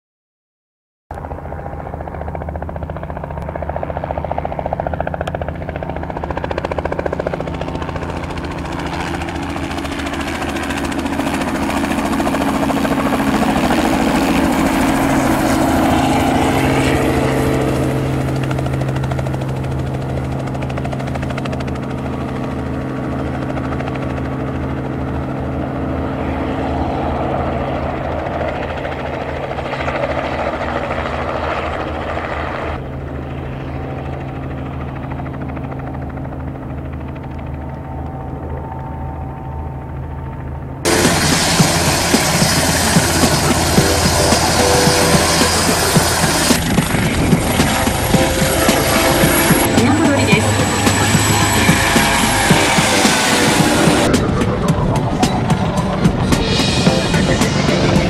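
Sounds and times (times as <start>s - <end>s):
helicopter rotor and engine: 1.1s - 58.0s.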